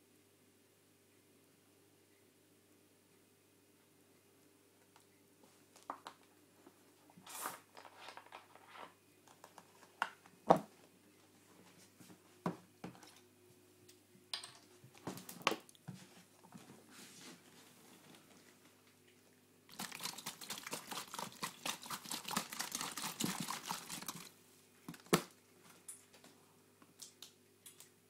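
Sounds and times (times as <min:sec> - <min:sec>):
faint steady hum: 0:00.0 - 0:28.0.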